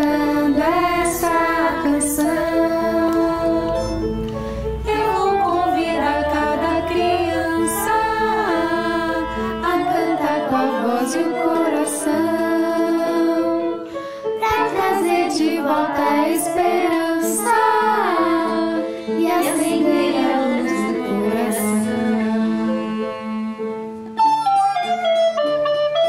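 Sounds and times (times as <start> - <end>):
recorders playing melody: 0.0 - 13.8
young voices singing: 0.0 - 23.5
violin: 0.0 - 26.0.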